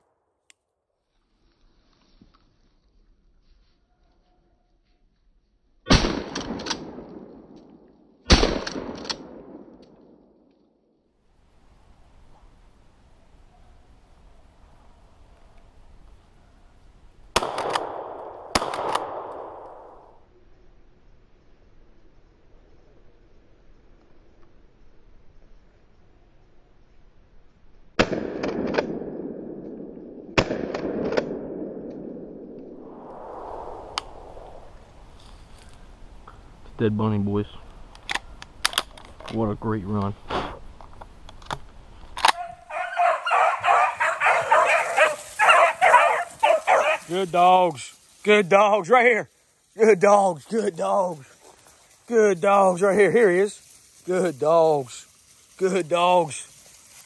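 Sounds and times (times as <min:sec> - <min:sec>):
echoing gunshots: 0:05.9 - 0:10.4, 0:17.3 - 0:20.1, 0:28.0 - 0:32.6
faint steady hiss: 0:11.2 - 0:28.0, 0:32.4 - 0:57.0
gunshots with echo: 0:17.4 - 0:20.1.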